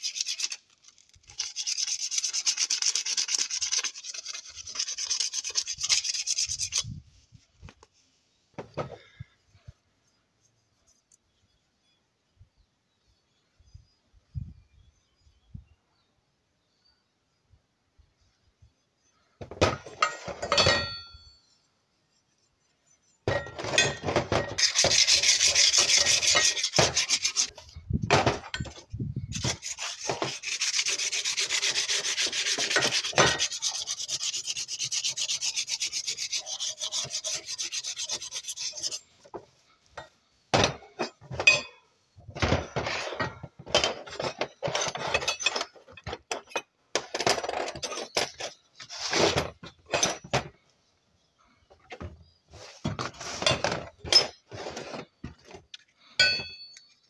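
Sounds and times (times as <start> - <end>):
sandpaper scrubbing metal: 0.0 - 6.9, 24.5 - 27.5, 29.3 - 39.1
short scrapes and knocks: 19.4 - 21.2, 23.0 - 41.7, 42.3 - 50.6, 51.7 - 56.7.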